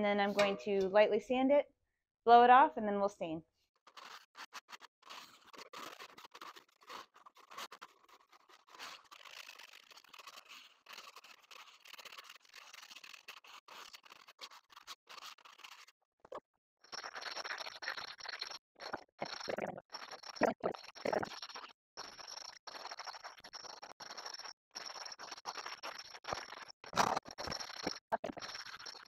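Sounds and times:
hand scraper scraping coating: 0.2 - 0.9, 3.9 - 15.9.

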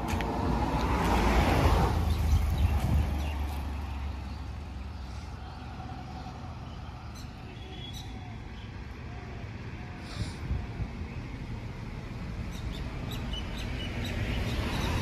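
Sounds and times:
road noise: 0.0 - 15.0
vehicle rumble: 0.0 - 15.0.

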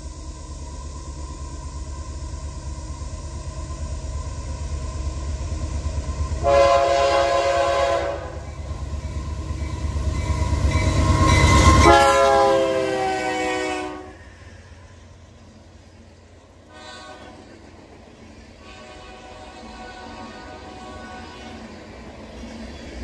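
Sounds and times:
locomotive engine rumble: 0.0 - 23.0
locomotive horn blasts: 6.4 - 8.4, 11.8 - 14.2, 16.7 - 17.4, 18.6 - 21.6.

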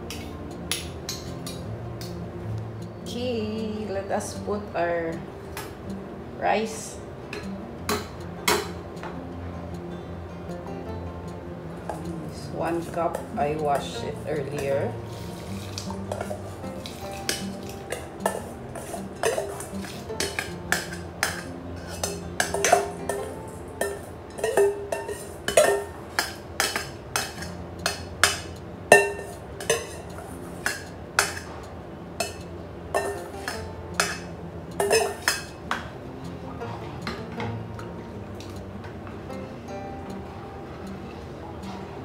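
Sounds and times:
spoon clinking on a pot: 11.8 - 31.6, 32.2 - 35.9
metal spoon scraping a bowl: 13.1 - 31.5.

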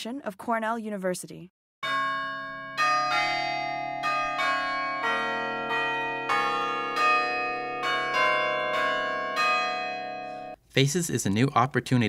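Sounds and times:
tower chime bells playing: 1.8 - 10.6.

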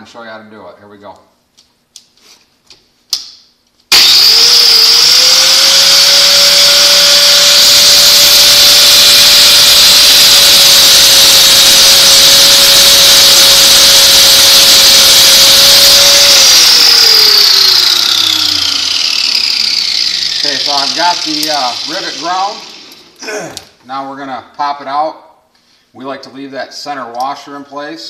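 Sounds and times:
bench grinder whine: 3.9 - 23.2
grinding steel: 3.9 - 23.2.

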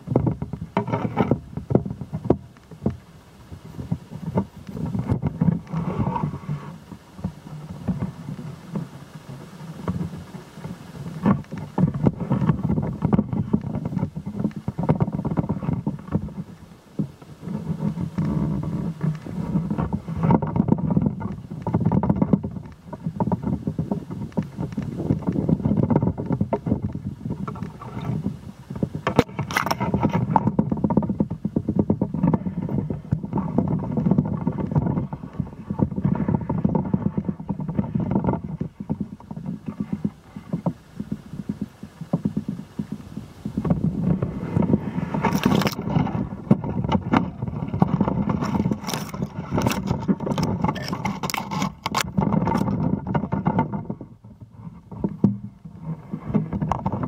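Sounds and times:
crackling handling noise: 0.0 - 57.0
wind buffeting microphone: 0.0 - 57.0.

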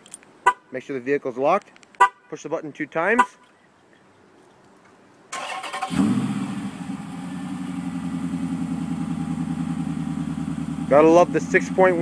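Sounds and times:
car engine idling: 5.4 - 12.0.

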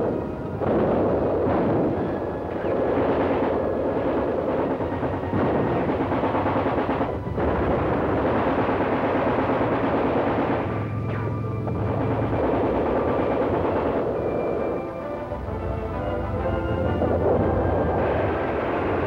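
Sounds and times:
heavy gunfire: 0.0 - 14.9, 16.9 - 19.0
machine-gun fire: 0.0 - 14.9, 17.0 - 19.0
shell blasts: 0.0 - 14.9.

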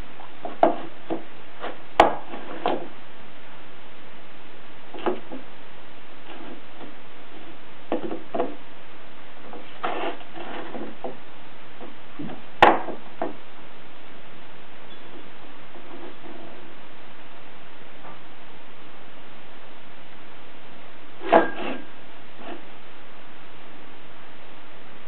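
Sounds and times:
steady hiss: 0.0 - 25.0
cat rubbing on floorboards: 9.5 - 11.2.

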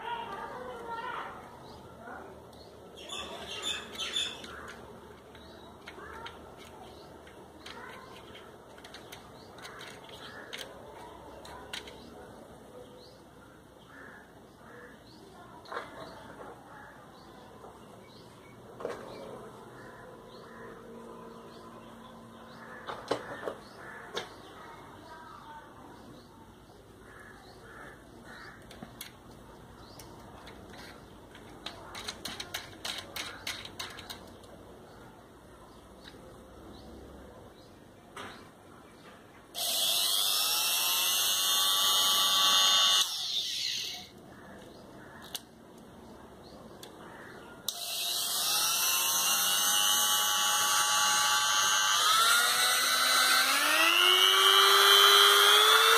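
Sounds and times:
clicks of small metal bits: 30.0 - 34.6.

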